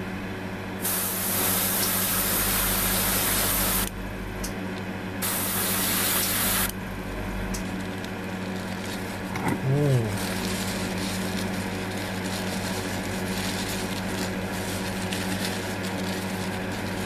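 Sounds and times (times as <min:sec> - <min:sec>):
steady low hum: 0:00.0 - 0:17.0
airbrush spraying hiss: 0:00.8 - 0:03.9, 0:05.2 - 0:06.7.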